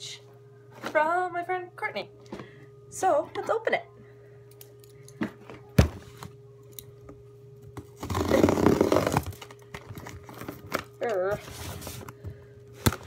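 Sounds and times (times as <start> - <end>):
cardboard box tearing open: 8.0 - 9.4.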